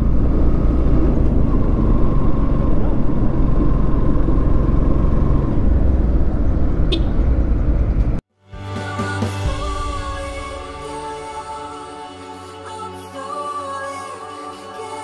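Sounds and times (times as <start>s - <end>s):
road and wind noise: 0.0s - 8.2s.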